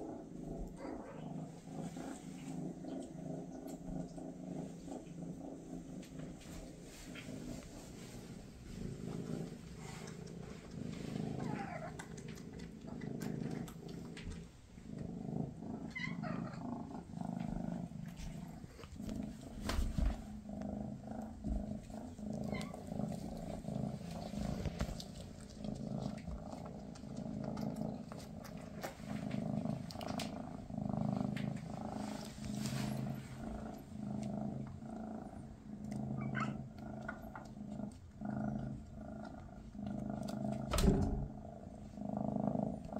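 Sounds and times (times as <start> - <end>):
cat purring: 0.0 - 42.9.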